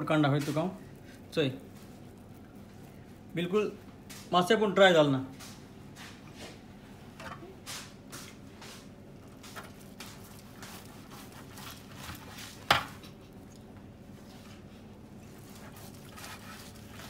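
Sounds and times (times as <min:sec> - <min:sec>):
knife slicing meat: 0:09.4 - 0:13.0, 0:14.5 - 0:17.0.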